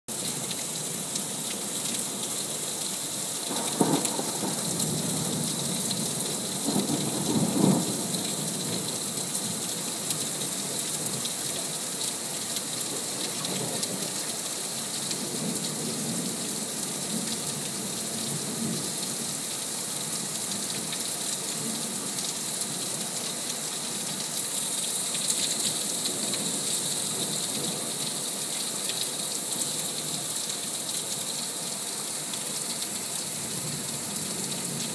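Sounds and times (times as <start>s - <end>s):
heavy rain pouring: 0.1s - 34.9s
thunder rumbling: 3.5s - 8.2s.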